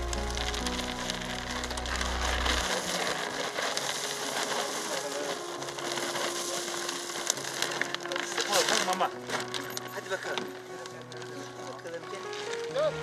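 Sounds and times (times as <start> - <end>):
background music with low notes: 0.0 - 13.0.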